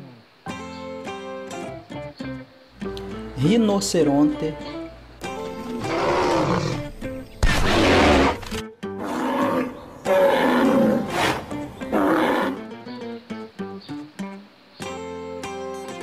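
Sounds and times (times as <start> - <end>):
acoustic guitar music: 0.4 - 16.0
animal roaring: 5.6 - 12.7.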